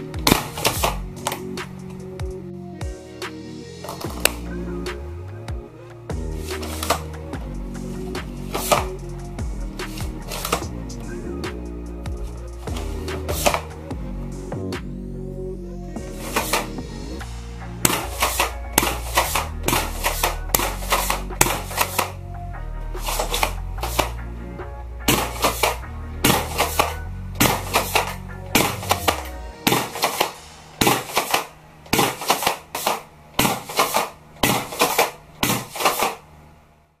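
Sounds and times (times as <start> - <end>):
electronic music with bass line: 0.0 - 35.0
airsoft rifle cracks: 25.1 - 36.2.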